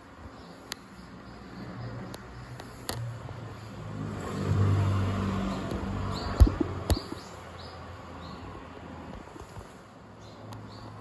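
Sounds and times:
vehicle engine passing: 0:01.7 - 0:08.3
small bird chirping: 0:05.4 - 0:08.5
sharp knocks: 0:06.3 - 0:07.2.

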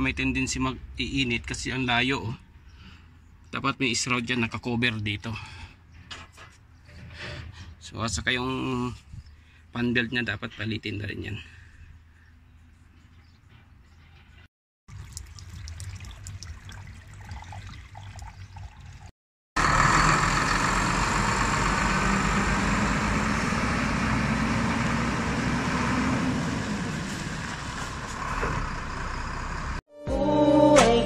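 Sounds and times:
diesel truck engine running: 0:19.6 - 0:29.8
rushing noise of moving truck: 0:19.6 - 0:29.8.

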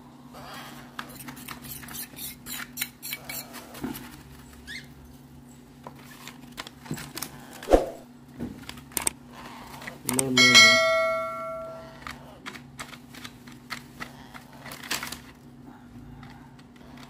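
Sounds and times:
chicks scratching on newspaper: 0:00.7 - 0:06.8.

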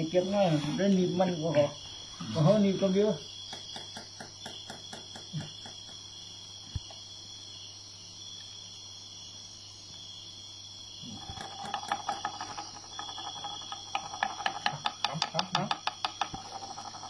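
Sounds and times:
insects shrilling: 0:00.0 - 0:17.0
fast scratchy clicks: 0:11.0 - 0:17.0.

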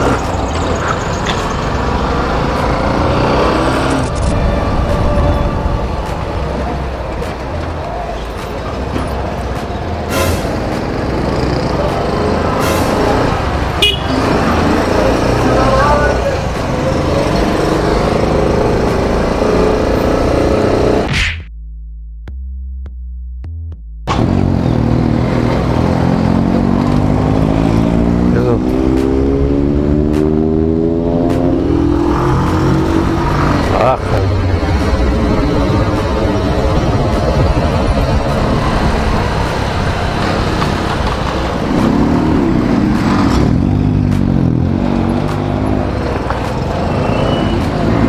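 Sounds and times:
motorcycle engine hum: 0:13.4 - 0:20.7
wind noise: 0:33.0 - 0:41.7.

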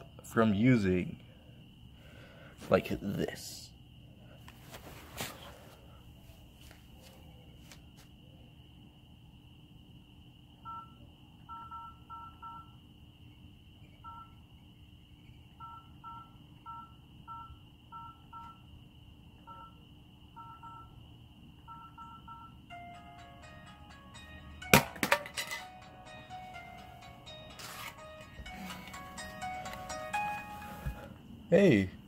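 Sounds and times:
phone keypad beeps: 0:10.7 - 0:12.7, 0:14.0 - 0:14.4, 0:15.6 - 0:18.6, 0:19.5 - 0:19.8, 0:20.4 - 0:20.9, 0:21.7 - 0:22.5
phone clattering on concrete: 0:24.8 - 0:25.7.

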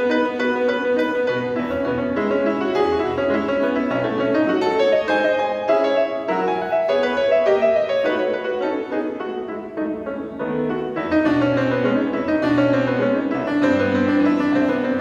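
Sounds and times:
grand piano playing: 0:00.0 - 0:15.0.

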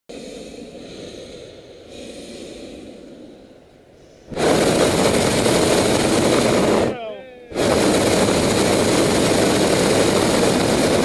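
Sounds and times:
propane burner roaring: 0:04.3 - 0:11.0.

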